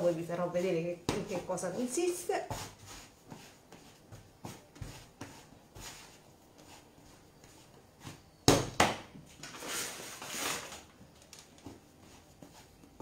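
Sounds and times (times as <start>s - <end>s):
hands kneading dough: 0.0s - 13.0s
dough slaps: 0.8s - 6.0s, 8.0s - 9.2s.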